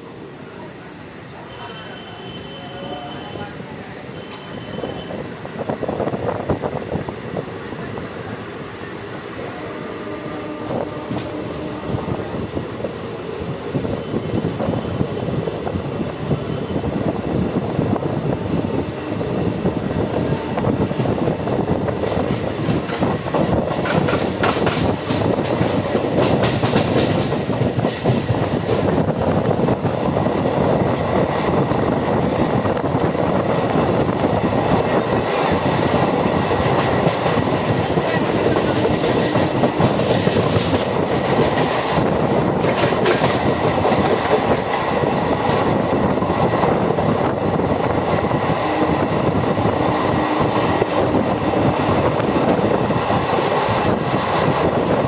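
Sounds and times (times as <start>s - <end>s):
train wheels rumbling on rail: 0.0s - 55.0s
clickety-clack over rail joints: 10.6s - 11.7s, 20.8s - 49.8s, 50.4s - 55.0s.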